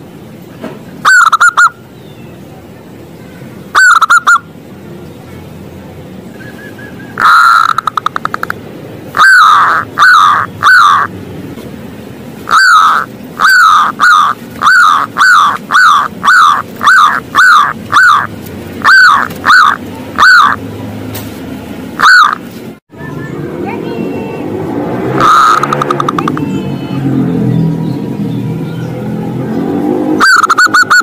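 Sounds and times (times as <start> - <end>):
dove cooing: 1.1 - 1.7, 3.8 - 4.4, 9.2 - 11.1, 12.5 - 20.6, 22.0 - 22.4, 30.2 - 31.0.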